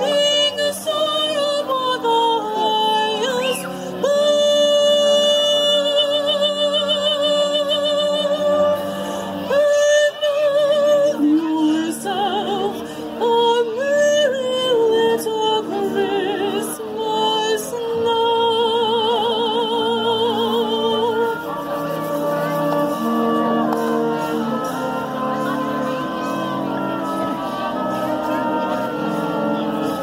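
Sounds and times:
woman singing operatically: 0.0s - 21.6s
concert band playing: 19.8s - 30.0s.

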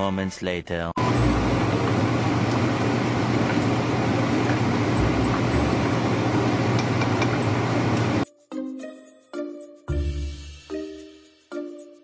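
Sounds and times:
food sizzling in hot oil: 1.0s - 8.2s
low motor hum: 1.0s - 8.2s.

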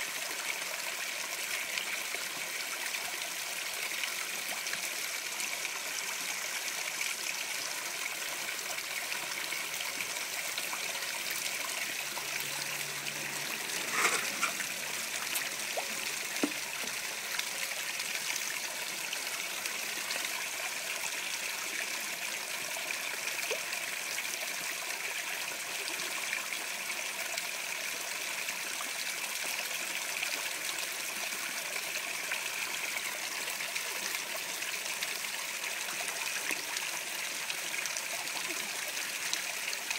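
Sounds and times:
water trickling into pond: 0.0s - 39.9s.

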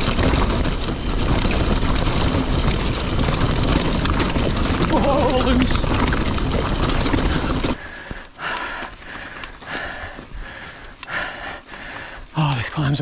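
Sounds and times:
wind buffeting microphone: 0.0s - 11.0s
bike on gravel: 0.0s - 13.0s
mountain bike rattling on rocks: 0.0s - 13.0s
rider breathing hard: 6.8s - 12.4s.

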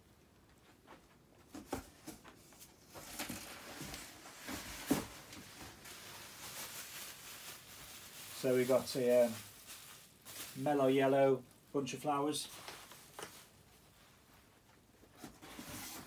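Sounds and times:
packaging rustling: 2.9s - 11.0s, 12.4s - 13.8s.

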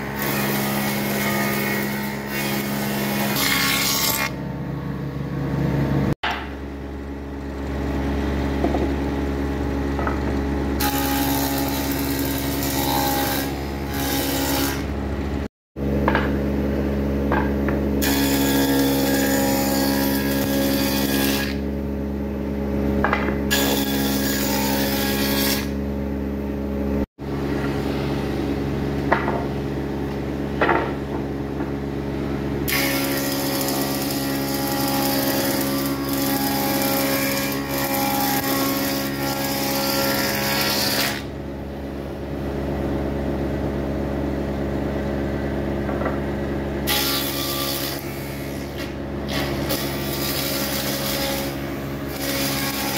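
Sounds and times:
woodworking machine motor: 32.7s - 41.3s, 46.8s - 52.9s
cutter cutting wood: 46.9s - 52.9s.

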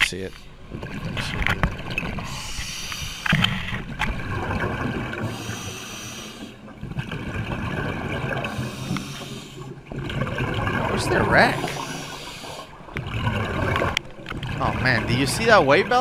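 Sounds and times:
hissing regulator inhalations: 2.2s - 3.8s, 5.2s - 6.6s, 8.5s - 9.8s, 11.5s - 12.8s
gurgle of exhaled bubbles: 3.6s - 16.0s.

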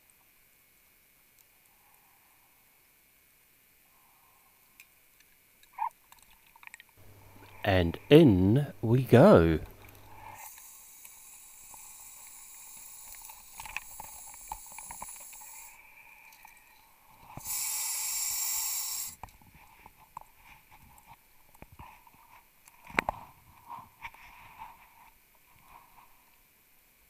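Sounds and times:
steady underwater hiss: 0.0s - 5.7s, 6.4s - 27.0s
burst of gas hissing: 10.1s - 16.0s, 17.3s - 19.2s.

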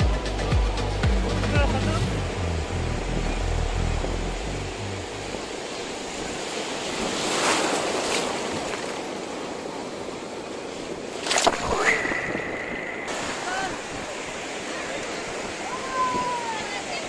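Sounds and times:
sea surf washing up beach: 0.0s - 17.0s
wave breaking with splash: 5.4s - 9.4s, 11.1s - 17.0s.

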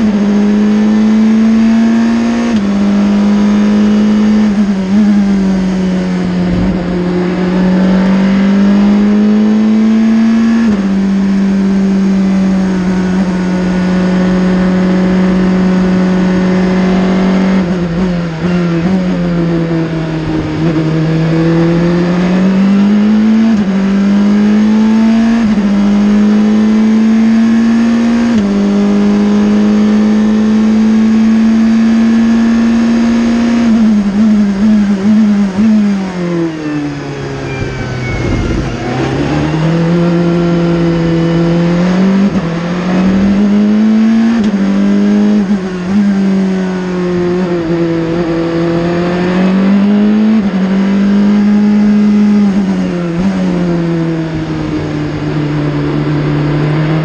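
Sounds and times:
race car engine revving: 0.0s - 57.0s
road noise: 0.0s - 57.0s
wind noise: 4.4s - 8.4s, 34.0s - 43.6s.

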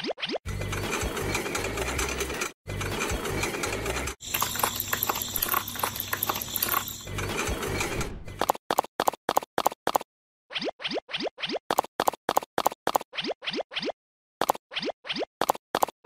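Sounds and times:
mechanical whirring and clicking: 0.5s - 8.5s.

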